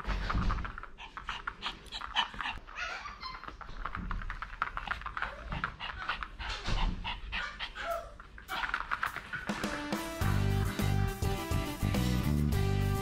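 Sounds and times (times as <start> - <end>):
dog panting: 0.5 - 9.7
dog whining: 1.6 - 3.7, 5.2 - 9.6.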